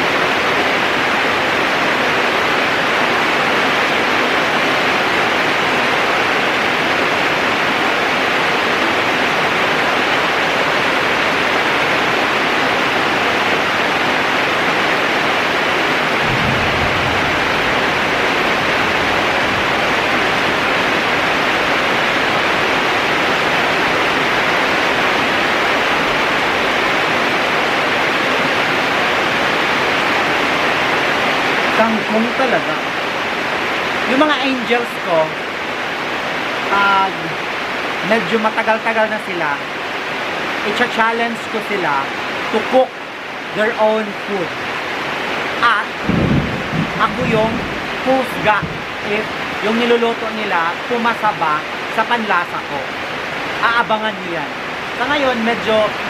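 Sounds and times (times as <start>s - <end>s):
heavy rain pouring: 0.0s - 56.0s
thunder rumble: 15.6s - 27.5s, 45.9s - 49.6s.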